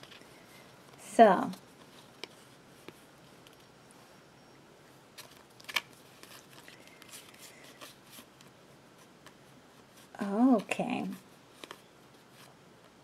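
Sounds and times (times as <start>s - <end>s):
cards clicking and rustling: 5.2s - 8.6s, 11.5s - 11.8s.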